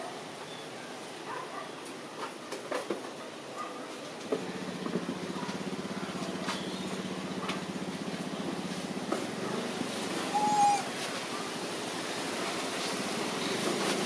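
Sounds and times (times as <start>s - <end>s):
small engine running: 4.3s - 10.8s.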